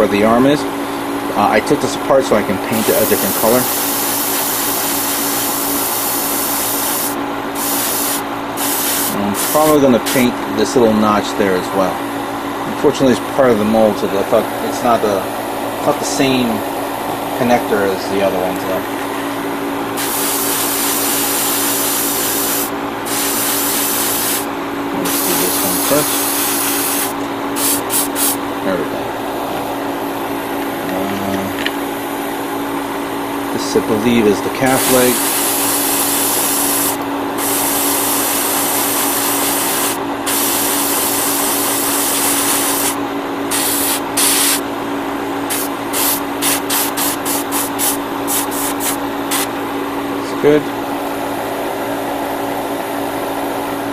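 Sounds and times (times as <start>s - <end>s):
steady low hum: 0.0s - 53.9s
airbrush spraying hiss: 2.8s - 10.3s, 20.0s - 28.4s, 34.7s - 44.6s, 45.5s - 49.5s.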